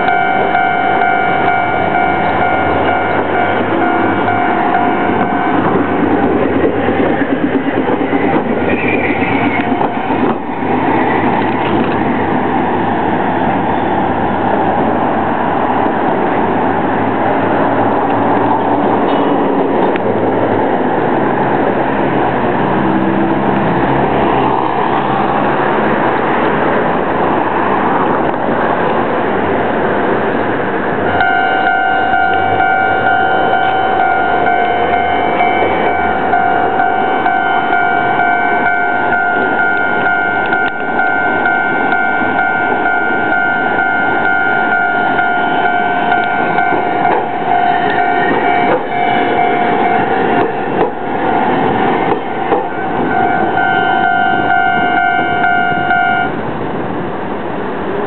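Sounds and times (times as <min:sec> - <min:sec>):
level-crossing alarm ringing: 0:00.0 - 0:06.0, 0:08.3 - 0:10.4, 0:31.1 - 0:56.4
streetcars rumbling past: 0:00.0 - 0:58.0.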